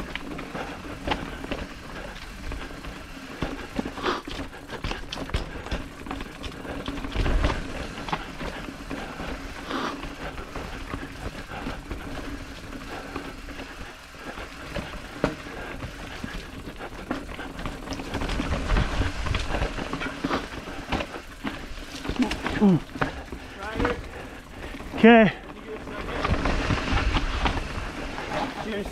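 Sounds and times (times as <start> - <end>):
bike clattering over rocks: 0.0 - 28.9
wind rumbling on microphone: 15.8 - 25.0.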